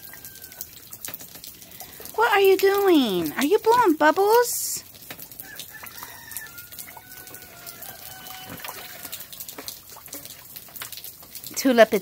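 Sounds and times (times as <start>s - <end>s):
rain patter: 0.0s - 12.0s
pig bubbling in puddle: 4.8s - 12.0s
faint high calls: 5.4s - 9.6s.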